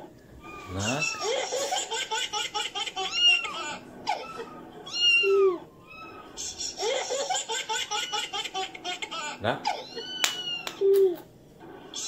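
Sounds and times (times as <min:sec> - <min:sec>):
person laughing in rhythmic bursts: 0:01.2 - 0:03.8, 0:06.4 - 0:09.2
cat meowing: 0:04.2 - 0:06.4, 0:09.8 - 0:10.8.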